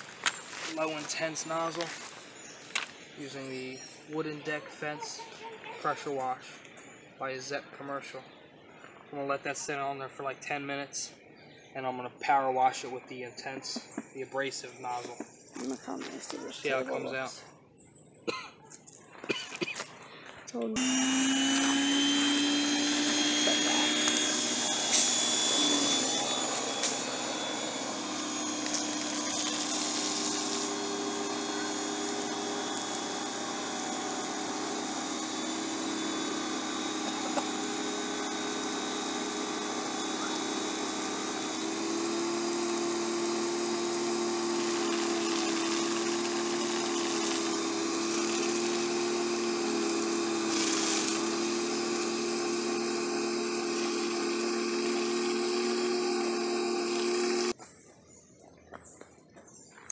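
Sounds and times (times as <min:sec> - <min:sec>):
pressure washer motor humming: 0:20.8 - 0:57.6
water spraying: 0:20.9 - 0:57.6.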